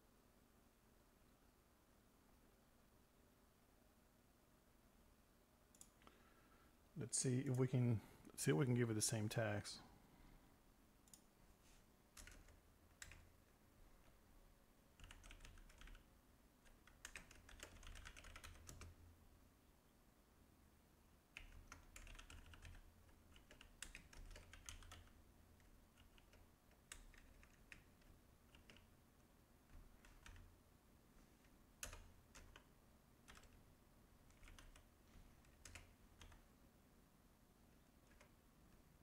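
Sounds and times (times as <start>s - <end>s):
faint keyboard typing: 5.7s - 6.3s, 7.2s - 8.4s, 11.0s - 19.1s, 21.3s - 30.6s, 31.2s - 36.5s, 37.7s - 39.0s.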